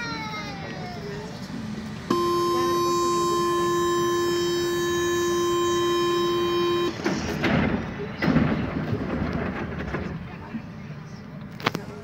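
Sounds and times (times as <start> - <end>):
train door warning buzzer: 2.1 - 7.0.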